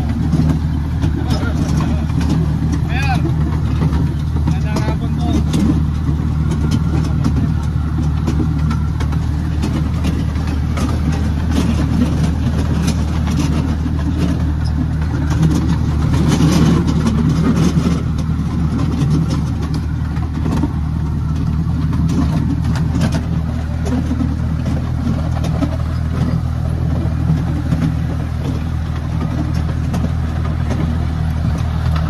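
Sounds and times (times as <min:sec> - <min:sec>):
vehicle engine running: 0:00.0 - 0:32.0.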